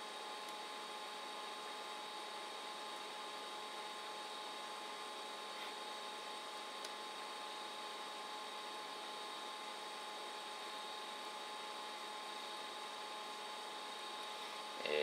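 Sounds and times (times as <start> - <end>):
faint electrical hum: 0.0 - 15.0
thin high whine: 13.9 - 15.0.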